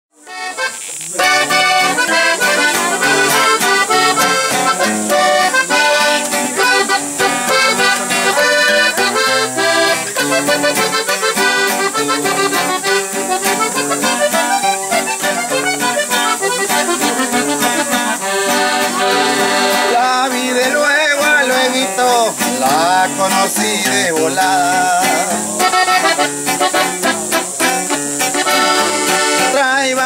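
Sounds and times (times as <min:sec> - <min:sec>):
accordion melody: 0:00.2 - 0:30.0
acoustic guitar accompaniment: 0:00.2 - 0:30.0.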